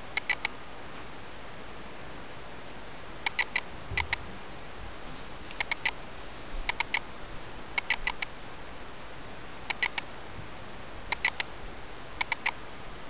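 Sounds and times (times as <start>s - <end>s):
camera autofocus motor clicking: 7.8s - 8.3s, 11.1s - 11.5s.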